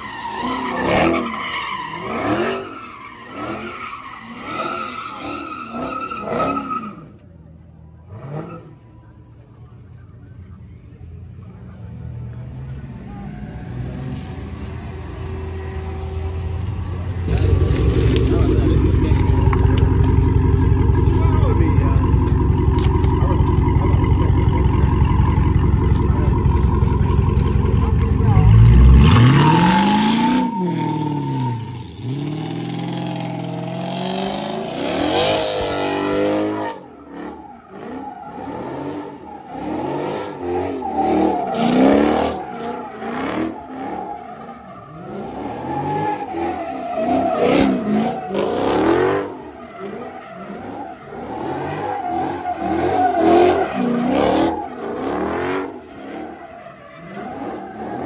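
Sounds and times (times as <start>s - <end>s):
tires squealing: 0.0s - 9.0s, 11.7s - 58.0s
car engine revving hard: 17.3s - 31.3s.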